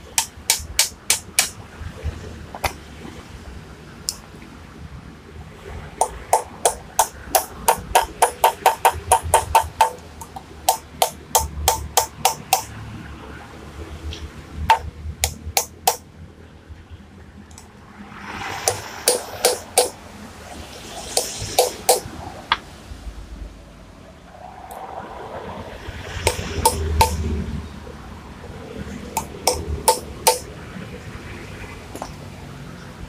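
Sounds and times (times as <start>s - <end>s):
hammer striking steel: 0.0s - 1.6s, 6.0s - 12.8s, 14.7s - 16.0s, 18.6s - 20.0s, 21.1s - 22.1s, 26.2s - 27.2s, 29.2s - 30.5s.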